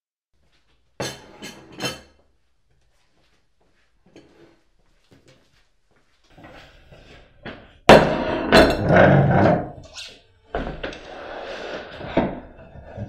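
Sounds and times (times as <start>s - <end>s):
wooden chair scraping: 8.3s - 9.8s.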